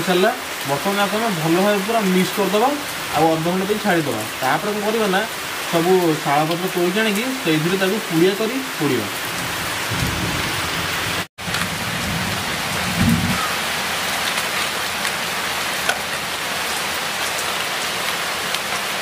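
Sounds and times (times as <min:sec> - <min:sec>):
rain falling: 0:00.0 - 0:19.0.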